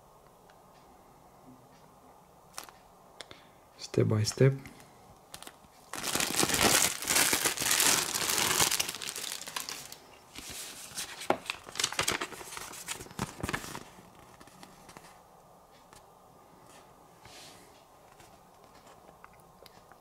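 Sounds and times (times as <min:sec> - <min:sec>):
packaging crinkling: 0:02.5 - 0:02.8, 0:05.3 - 0:14.6.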